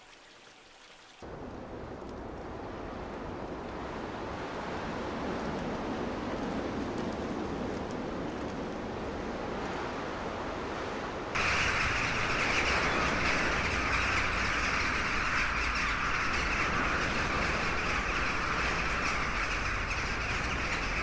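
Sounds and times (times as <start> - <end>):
low rumble of surf: 1.2 - 21.0
seabird colony squawking: 11.4 - 21.0.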